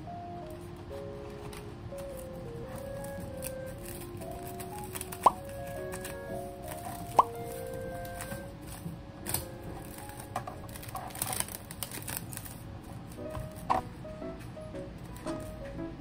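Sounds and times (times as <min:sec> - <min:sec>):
soft background music: 0:00.0 - 0:16.0
plastic cling wrap crinkling: 0:00.9 - 0:13.7.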